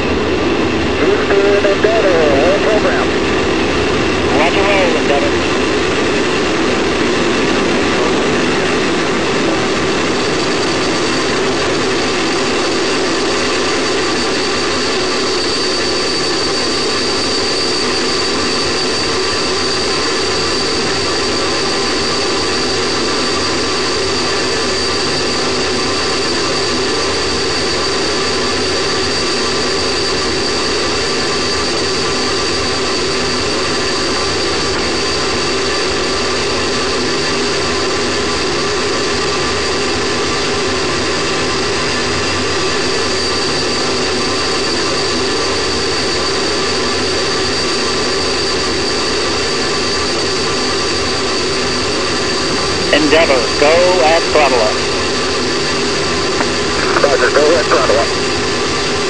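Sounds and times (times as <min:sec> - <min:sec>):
steady high tone: 0:52.8 - 0:55.0.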